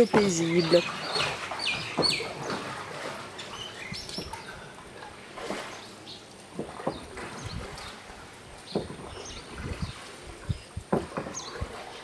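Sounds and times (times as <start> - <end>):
small birds chirping: 0.0 - 2.6, 3.4 - 4.6, 6.9 - 11.6
paddle splashing water: 0.0 - 12.0.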